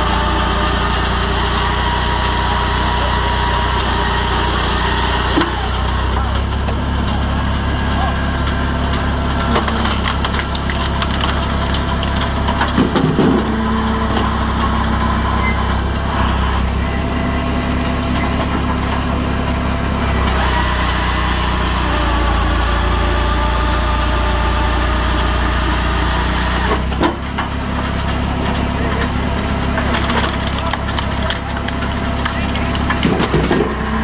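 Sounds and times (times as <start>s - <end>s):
engine and hydraulics running: 0.0s - 34.0s
wood splitting cracks: 8.8s - 13.6s, 26.6s - 33.8s.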